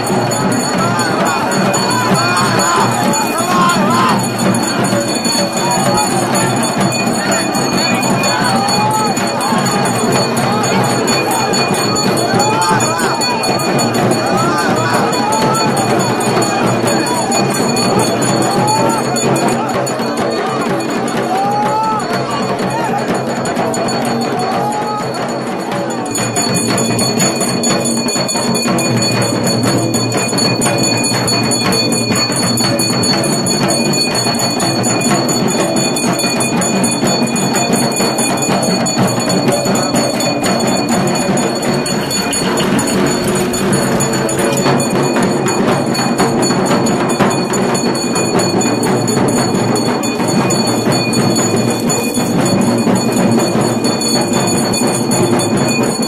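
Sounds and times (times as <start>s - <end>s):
high ringing: 0.0s - 21.2s, 23.2s - 56.0s
fast drumming: 0.0s - 56.0s.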